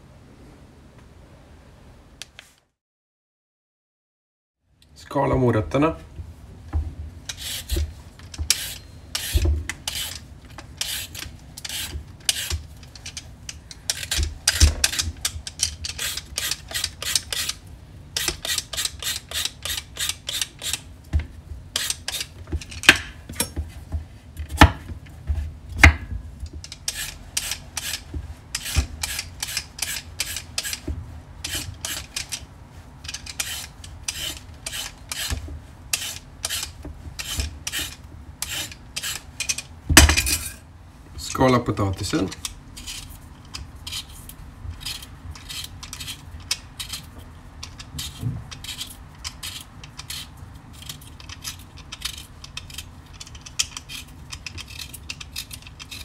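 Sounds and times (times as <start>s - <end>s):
peeler scraping carrots: 7.3s - 20.9s, 21.7s - 23.5s, 26.5s - 39.7s, 41.9s - 56.0s.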